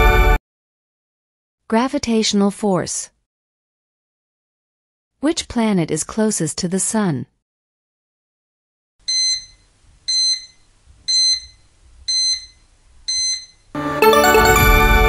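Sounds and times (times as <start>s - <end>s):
short electronic beeps: 9.1s - 13.6s
loud musical chime: 14.0s - 15.0s.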